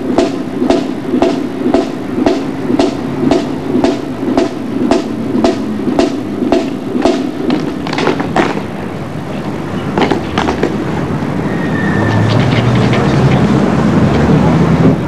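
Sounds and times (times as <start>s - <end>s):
sharp cracks: 0.2s - 8.8s.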